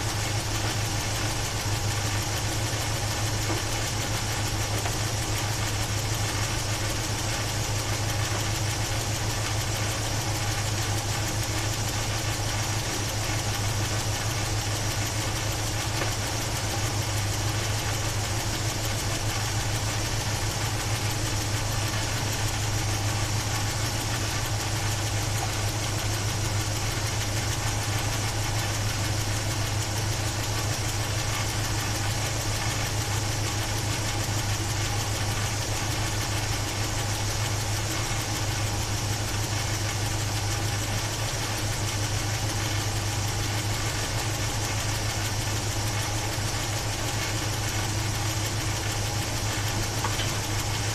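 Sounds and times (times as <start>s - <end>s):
car engine idling: 0.0s - 50.9s.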